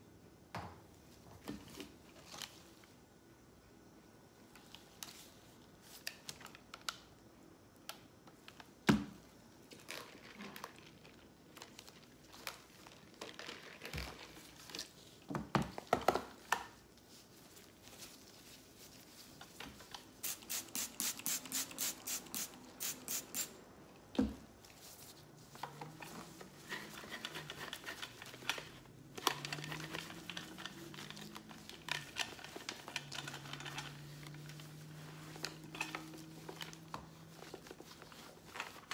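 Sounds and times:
cloth rubbing plastic: 24.7 - 38.9.

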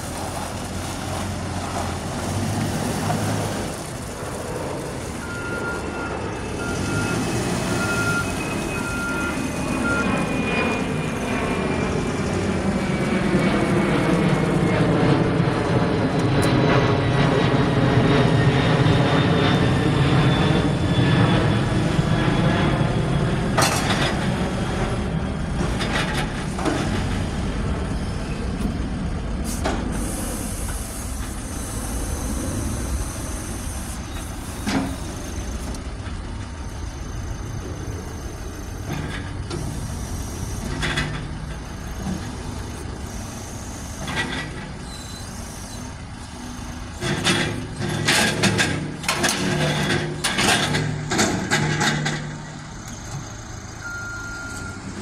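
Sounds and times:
loader diesel engine running: 0.0 - 55.0
reversing alarm beeping: 5.1 - 12.2, 36.4 - 48.1, 50.4 - 55.0.

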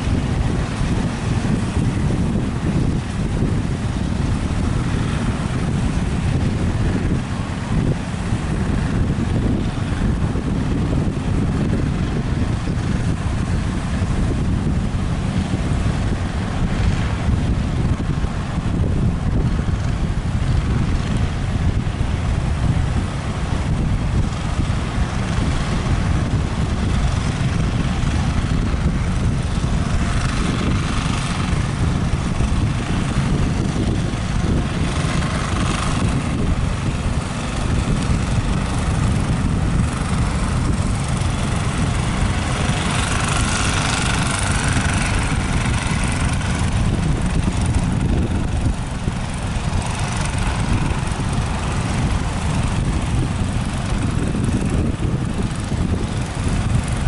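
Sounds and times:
breaking surf hiss: 0.0 - 57.0
wind buffeting microphone: 0.0 - 57.0.

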